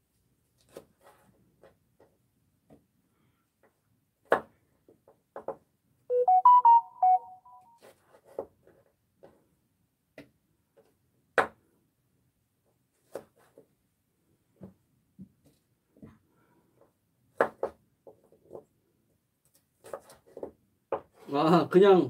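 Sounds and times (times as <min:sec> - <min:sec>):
electronic jingle: 0:06.1 - 0:07.6.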